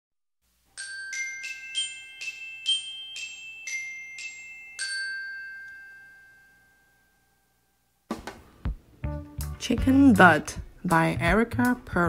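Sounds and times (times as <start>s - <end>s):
bell-like tuned percussion melody: 0.8s - 7.6s.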